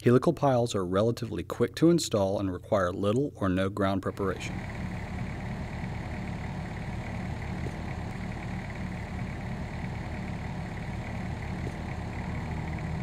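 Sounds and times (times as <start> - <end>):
diesel engine idling: 4.0 - 13.0.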